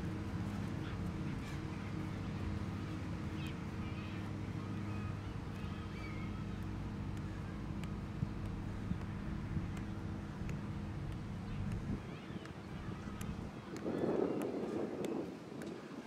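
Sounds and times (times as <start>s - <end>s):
soccer ball tapping on grass: 4.7s - 15.8s.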